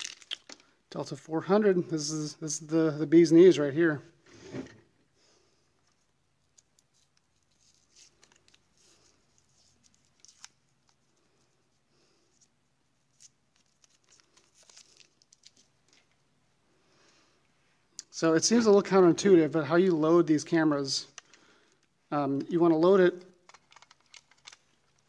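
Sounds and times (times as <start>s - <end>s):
paper rustling and tearing: 6.6s - 11.0s, 13.1s - 15.7s.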